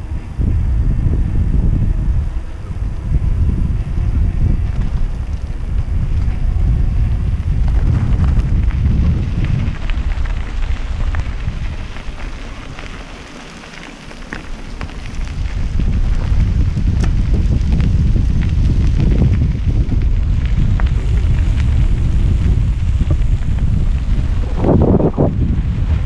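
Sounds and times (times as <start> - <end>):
bicycle tyres crunching on gravel: 0.0 - 26.0
wind buffeting microphone: 0.0 - 26.0.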